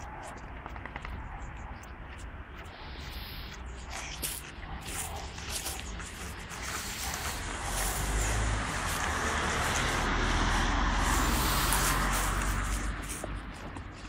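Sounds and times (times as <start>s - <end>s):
dogs scrabbling in dirt: 0.0s - 2.7s, 3.5s - 10.2s
vehicle passing rumbling rush: 2.8s - 14.0s.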